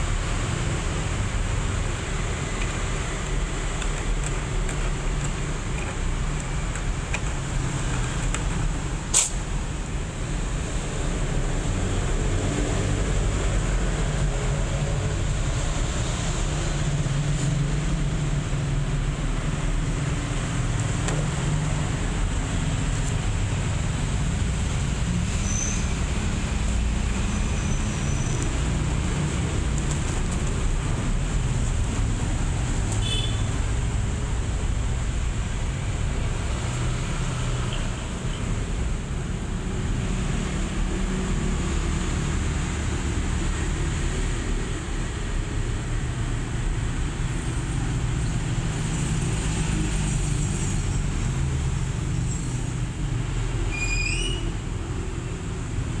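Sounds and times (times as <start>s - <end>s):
road traffic rumble: 0.0s - 56.0s
sharp click: 9.1s - 9.4s.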